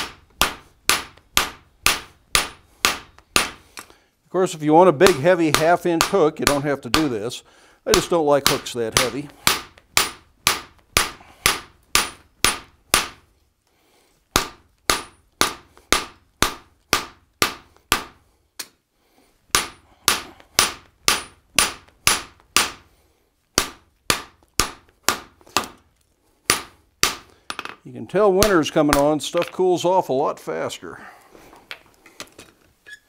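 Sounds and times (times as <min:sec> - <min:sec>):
hammer striking steel on anvil: 0:00.0 - 0:03.6, 0:08.0 - 0:13.2, 0:19.5 - 0:22.8.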